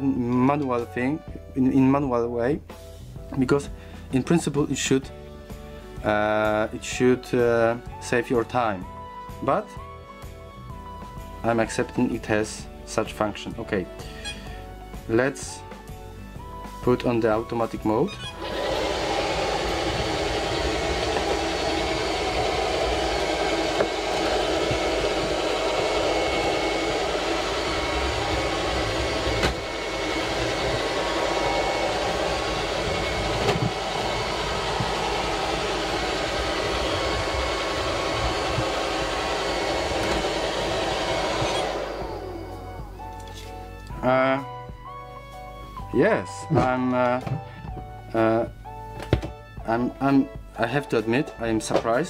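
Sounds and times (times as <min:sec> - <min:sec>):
robot vacuum cleaner running: 0:18.1 - 0:43.1.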